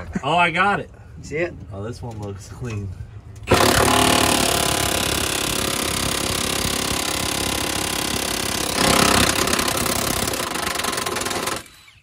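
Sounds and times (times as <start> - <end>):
impact wrench hammering: 3.5 - 11.7.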